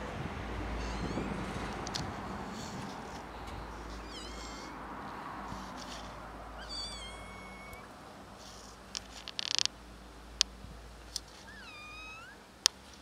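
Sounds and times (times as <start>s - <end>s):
kitten meowing: 0.5s - 4.9s, 5.5s - 8.6s, 11.4s - 12.4s.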